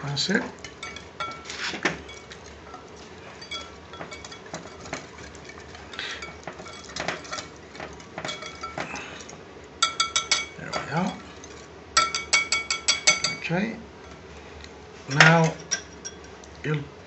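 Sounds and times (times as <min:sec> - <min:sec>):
metal utensil clinking glass bowl: 0:00.3 - 0:14.2, 0:15.1 - 0:16.5.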